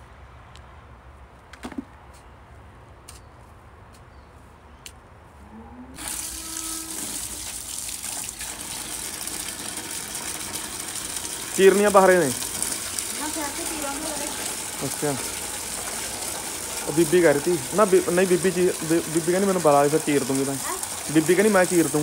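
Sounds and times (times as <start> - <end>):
tap water running: 6.0 - 22.0.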